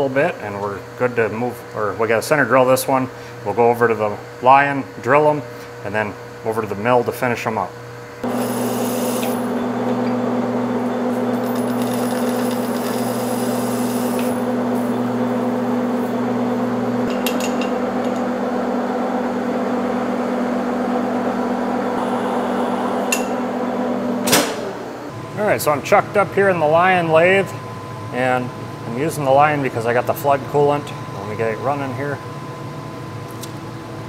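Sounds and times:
lathe humming: 8.2s - 32.7s.

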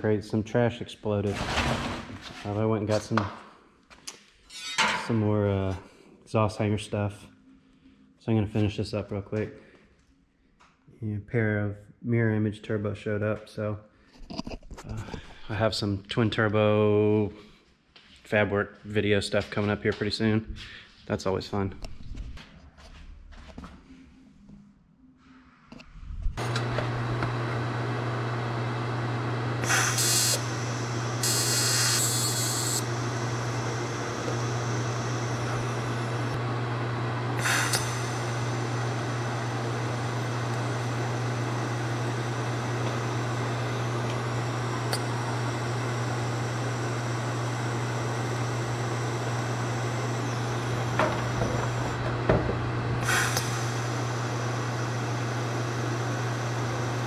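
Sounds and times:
welding arc buzzing: 29.2s - 57.0s.

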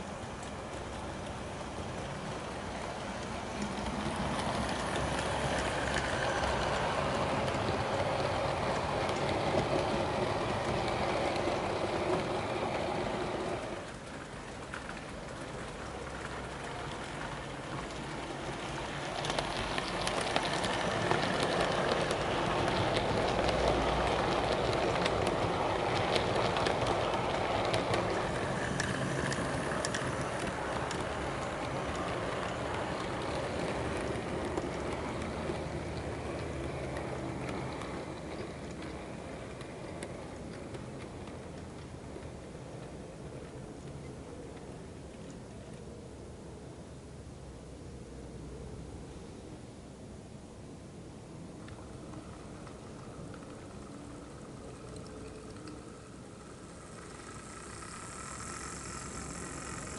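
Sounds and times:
model trains rumbling on track: 0.0s - 45.9s, 51.3s - 59.9s
faint clicks: 51.6s - 59.9s.

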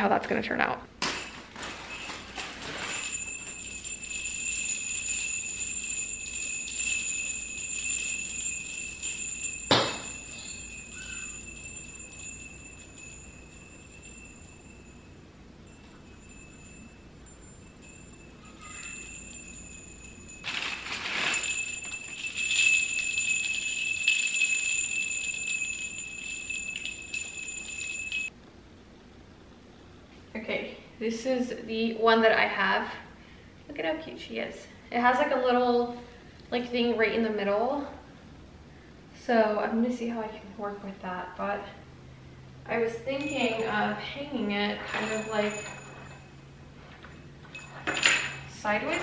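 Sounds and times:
small metal bells jingling: 1.0s - 28.4s, 42.7s - 49.0s.

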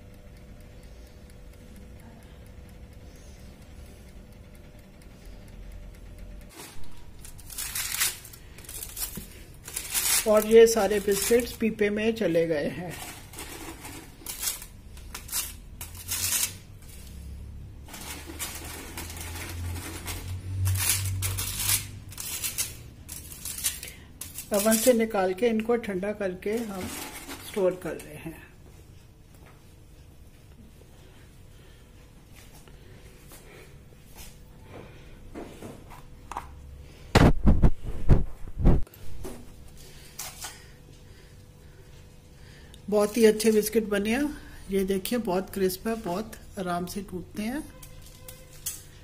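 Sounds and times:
plastic bag and paper rustling: 6.5s - 11.7s, 12.7s - 17.1s, 17.9s - 22.6s.

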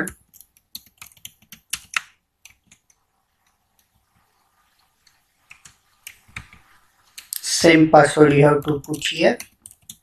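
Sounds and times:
typing on computer keyboard: 0.0s - 3.0s, 5.4s - 7.4s, 8.6s - 10.0s.

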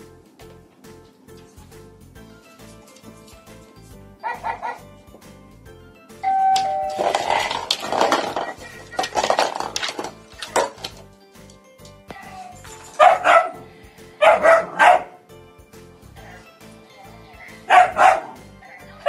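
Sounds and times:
background music: 0.0s - 19.0s
dog barking: 4.2s - 4.9s, 13.0s - 15.2s, 17.4s - 19.0s.

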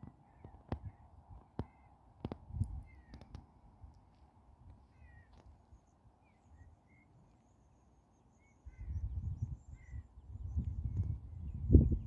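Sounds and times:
wind buffeting microphone: 0.0s - 3.9s, 8.6s - 12.0s
small birds chirping: 0.0s - 12.0s.

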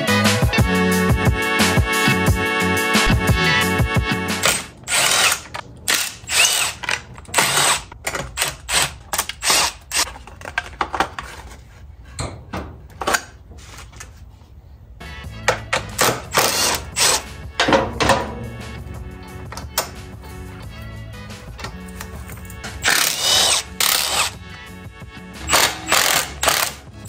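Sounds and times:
background music: 0.0s - 5.3s, 15.0s - 27.0s
handheld power tool bursts: 4.4s - 10.1s, 22.8s - 24.4s, 25.5s - 26.8s.

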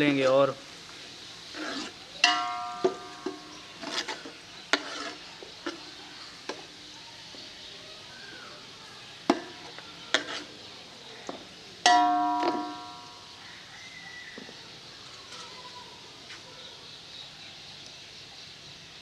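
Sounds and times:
onions sizzling in oil: 0.0s - 16.0s
metal ladle scraping a pot: 1.5s - 5.9s, 9.3s - 10.6s, 11.9s - 13.2s.

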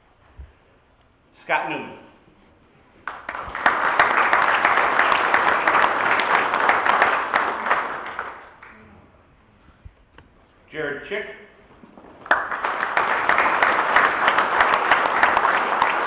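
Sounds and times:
audience applauding: 3.0s - 8.8s, 12.0s - 16.0s.

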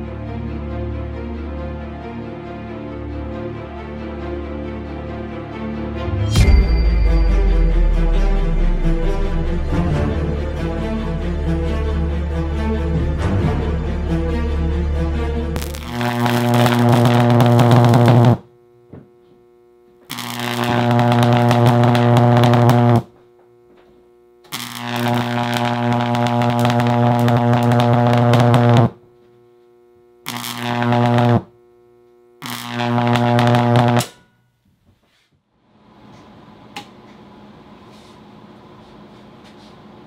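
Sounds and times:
high-voltage arcs buzzing: 15.5s - 18.6s, 20.0s - 23.6s, 24.3s - 29.2s, 29.8s - 34.2s.

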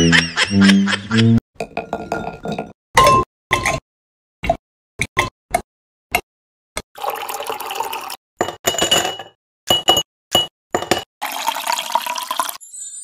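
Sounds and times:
liquid pouring into glass: 7.0s - 8.2s, 11.2s - 12.6s.

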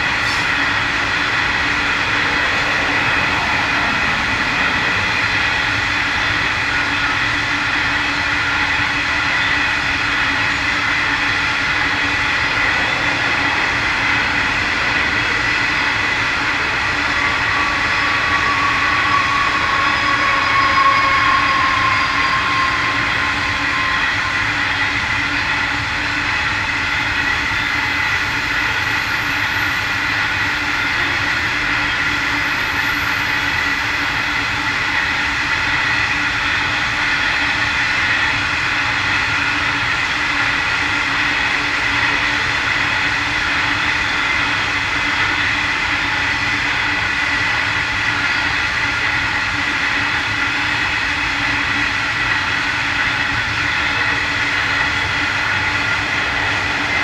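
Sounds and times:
train wheels rumbling on rails: 0.0s - 57.0s
high-pitched wheel tones: 11.2s - 26.0s.

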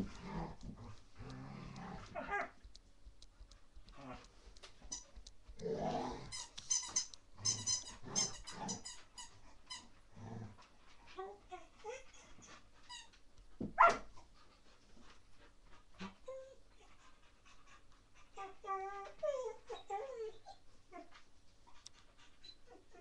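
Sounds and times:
puppy growling: 0.0s - 2.6s, 5.6s - 6.5s
puppy barking: 13.8s - 14.1s.

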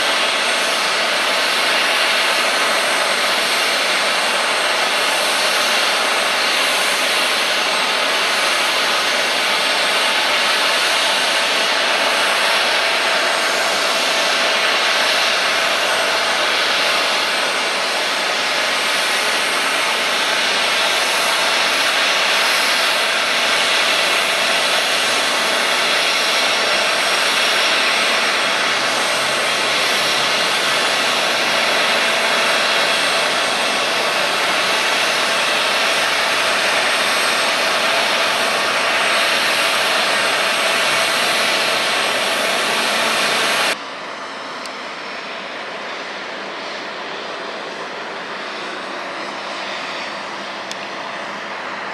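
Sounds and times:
jet engine rush: 0.0s - 51.9s.

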